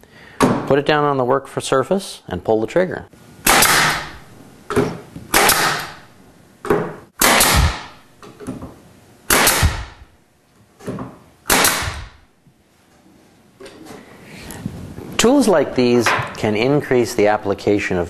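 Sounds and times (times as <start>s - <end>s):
pneumatic stapler shots: 3.4s - 6.0s, 6.7s - 8.0s, 9.3s - 10.1s, 11.4s - 12.2s.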